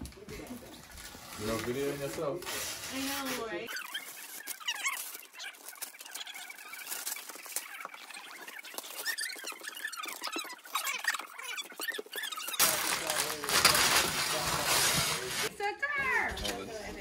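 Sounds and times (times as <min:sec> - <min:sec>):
wrapping paper tearing and crinkling: 0:00.4 - 0:15.5
short high squeaks: 0:02.9 - 0:12.8.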